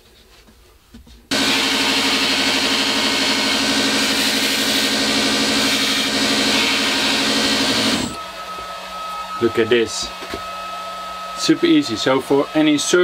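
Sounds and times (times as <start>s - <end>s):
belt grinder humming: 1.3s - 8.2s.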